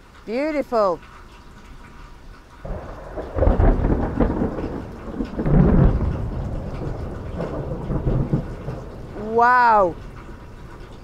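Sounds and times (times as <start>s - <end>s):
thunder rumbling: 2.6s - 11.0s.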